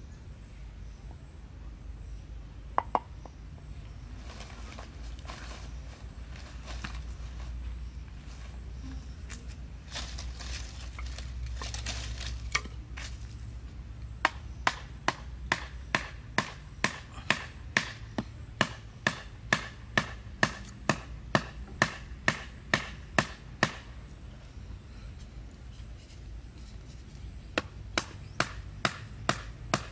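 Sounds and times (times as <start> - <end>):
stick knocking wooden stake: 2.8 - 3.1, 11.0 - 13.2, 14.2 - 23.9, 27.5 - 29.9
rustling: 4.1 - 13.6
footsteps: 4.2 - 13.5.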